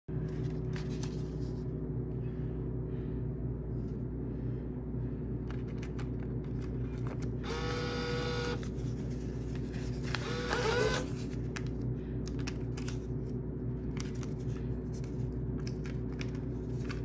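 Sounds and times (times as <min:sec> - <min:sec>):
vending machine cooling hum: 0:00.1 - 0:17.0
steady-pitched whine: 0:06.8 - 0:11.4.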